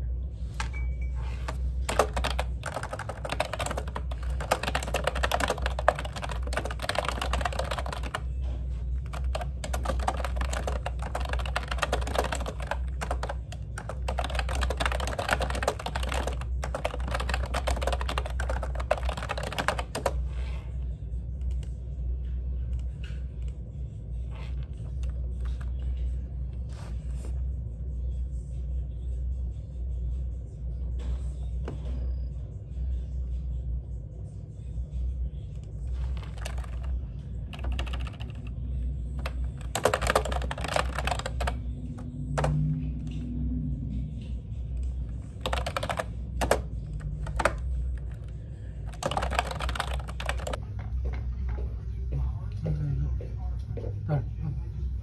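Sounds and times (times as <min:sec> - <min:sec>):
keyboard typing clatter: 0:01.4 - 0:20.2, 0:35.9 - 0:50.6.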